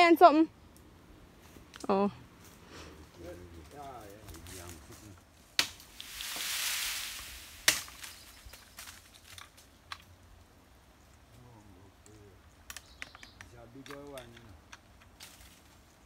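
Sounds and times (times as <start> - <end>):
brief rushing hiss: 5.9 - 8.2
chainsaw chain clicks and taps: 12.1 - 15.2.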